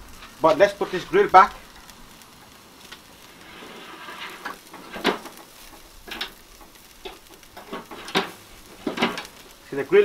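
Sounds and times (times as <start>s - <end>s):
chicken sizzling faintly: 0.0s - 10.0s
metal tongs clinking on grill racks: 4.3s - 9.4s.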